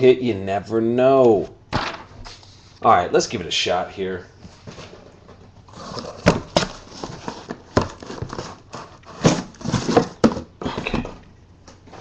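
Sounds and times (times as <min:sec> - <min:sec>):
cardboard scraping and rustling: 0:04.5 - 0:11.2.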